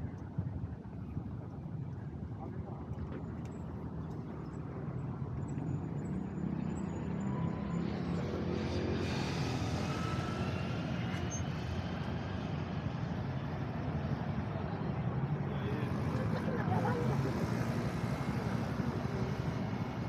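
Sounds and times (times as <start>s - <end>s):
street traffic: 2.4s - 20.0s
vehicle passing close: 6.4s - 12.3s.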